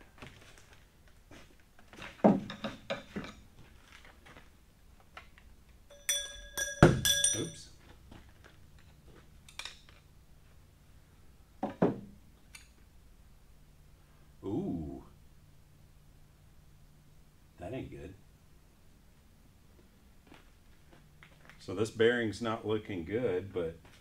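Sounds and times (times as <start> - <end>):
metal engine parts clanking: 5.9 - 7.6
ringing metallic clinks: 5.9 - 7.8
metal thunk: 6.2 - 7.4.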